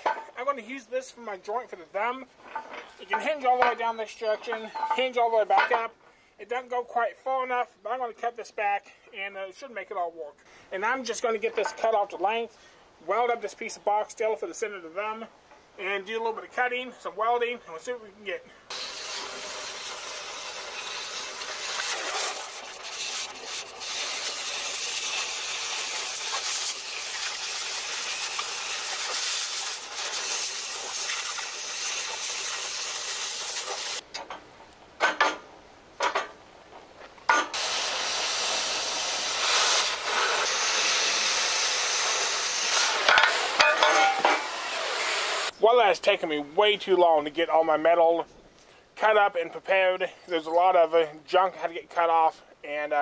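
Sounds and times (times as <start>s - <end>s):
cutting torch hissing: 18.7s - 34.0s, 37.5s - 45.5s.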